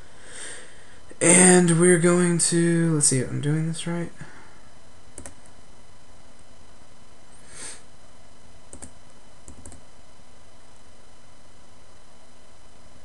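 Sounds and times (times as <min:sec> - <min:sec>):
steady low hiss: 0:00.0 - 0:13.0
computer mouse clicks: 0:05.2 - 0:05.5, 0:08.7 - 0:09.8
short breathy hiss: 0:07.4 - 0:07.9.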